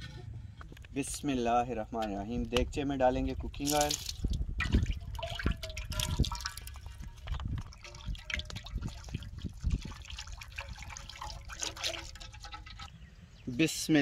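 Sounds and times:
oil trickling into a metal pot: 3.5 - 12.9.

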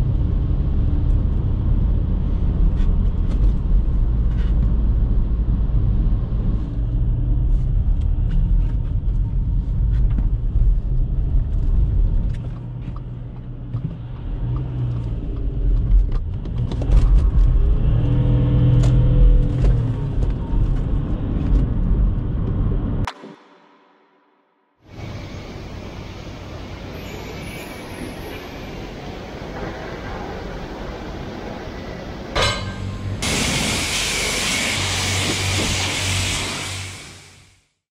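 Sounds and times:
road and tyre rumble: 0.0 - 23.1, 24.8 - 37.8
diesel engine pulling: 24.9 - 37.6.

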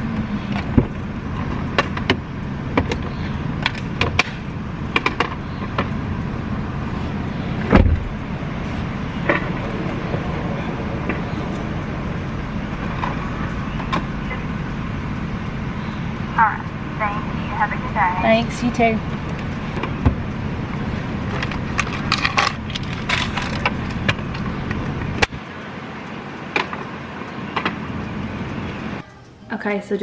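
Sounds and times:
car engine idling: 0.0 - 29.9
loud thump: 7.7 - 8.2.

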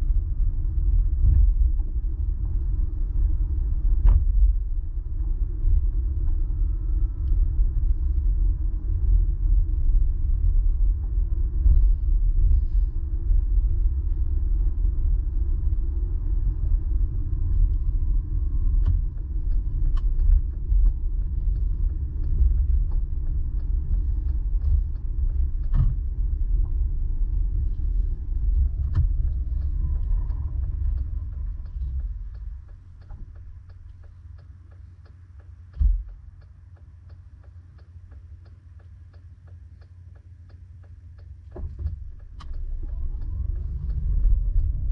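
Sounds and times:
car driving rumble inside cabin: 0.0 - 44.9
car engine idling: 0.0 - 44.9
low thump: 35.7 - 36.1.

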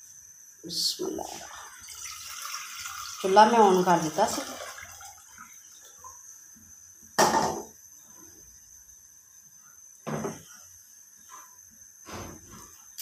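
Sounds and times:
bowls knocked on hard surface: 7.2 - 7.8.

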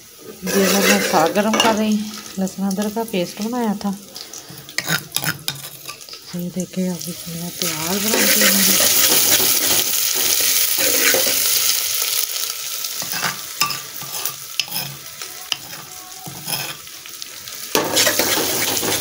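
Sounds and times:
paste sizzling in hot oil: 0.0 - 19.0
spoon stirring in pan: 0.2 - 6.4, 7.0 - 12.1, 12.9 - 19.0.

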